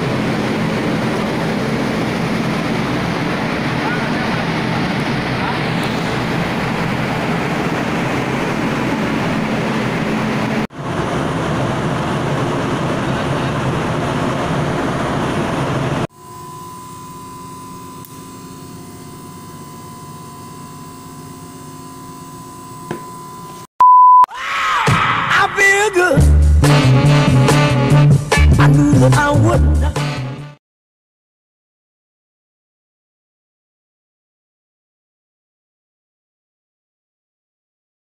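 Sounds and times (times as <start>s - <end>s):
machinery hum: 0.0s - 23.7s
ship machinery roaring: 0.0s - 23.7s, 25.0s - 30.6s
steady high whine: 0.0s - 23.7s.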